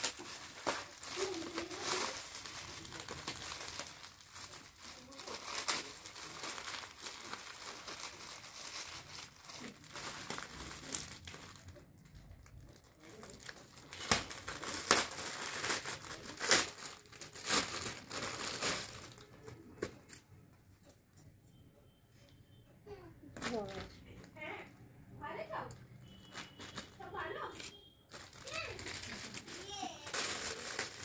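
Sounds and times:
gift wrapping crumpling and tearing: 0:00.0 - 0:20.2, 0:26.1 - 0:31.0.

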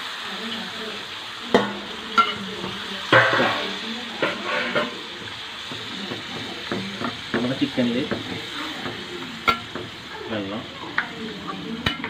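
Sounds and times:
curry sizzling in a pot: 0:00.0 - 0:12.0
metal spatula clacking on pot: 0:01.5 - 0:10.1, 0:11.8 - 0:12.0.

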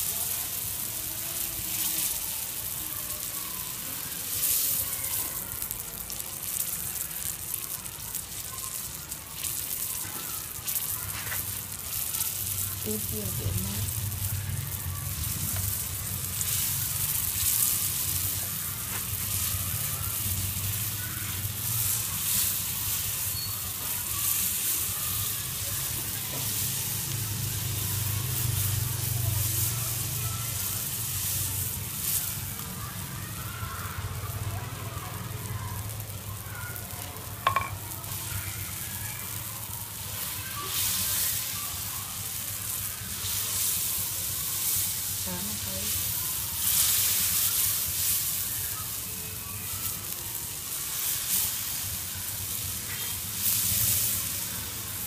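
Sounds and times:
dough sizzling on griddle: 0:00.0 - 0:55.0
faint crackles: 0:00.0 - 0:55.0.

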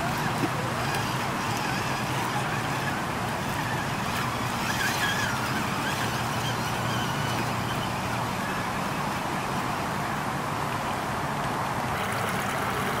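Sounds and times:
electric motor and gears whining: 0:00.0 - 0:07.9
running stream: 0:00.0 - 0:13.0
water splashing around tires: 0:00.0 - 0:13.0.

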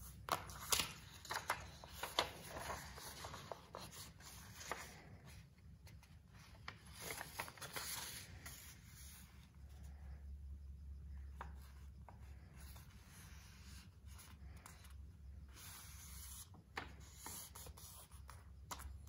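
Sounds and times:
paper rustling and crinkling: 0:00.3 - 0:09.2.

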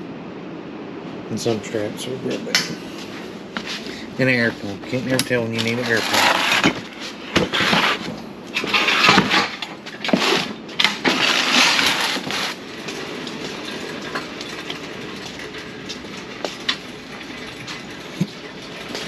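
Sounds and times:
hand truck rolling on concrete: 0:01.4 - 0:19.0
metal hand truck clanking: 0:04.4 - 0:19.0.

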